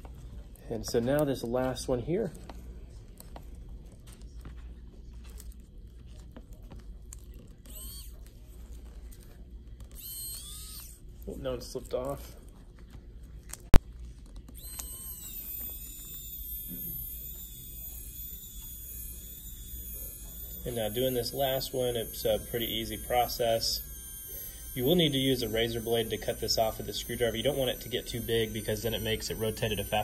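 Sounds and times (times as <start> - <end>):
low steady hum: 0.0 - 30.0
electric screwdriver motor whining: 5.2 - 12.4, 13.4 - 30.0.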